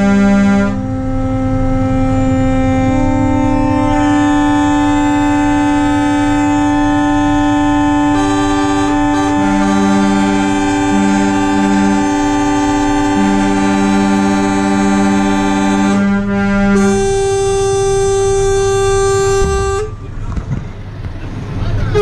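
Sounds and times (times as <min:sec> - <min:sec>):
lower horn short blasts: 0:00.0 - 0:20.1, 0:21.8 - 0:22.0
truck air horns: 0:00.0 - 0:20.3, 0:21.7 - 0:22.0.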